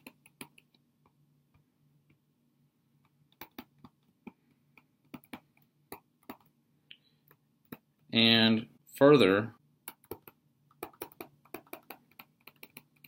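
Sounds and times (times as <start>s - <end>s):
stylus tapping on tablet screen: 0.0s - 2.2s, 3.0s - 6.6s, 7.2s - 8.1s, 9.8s - 13.0s.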